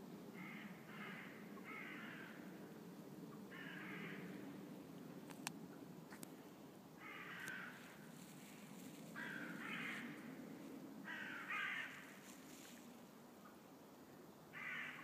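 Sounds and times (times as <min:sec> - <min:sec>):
crow cawing: 0:00.4 - 0:02.4, 0:03.5 - 0:04.3, 0:07.0 - 0:08.0, 0:09.2 - 0:10.2, 0:11.0 - 0:12.2, 0:14.5 - 0:15.0.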